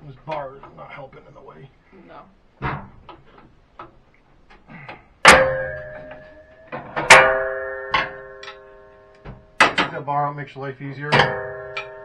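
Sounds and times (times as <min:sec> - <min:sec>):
metallic clanks ringing: 0:05.2 - 0:10.0, 0:11.0 - 0:12.0.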